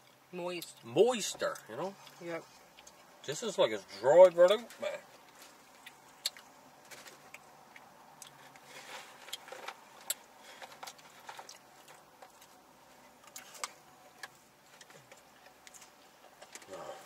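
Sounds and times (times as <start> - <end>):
person chewing food: 2.0 - 3.2, 5.2 - 17.0.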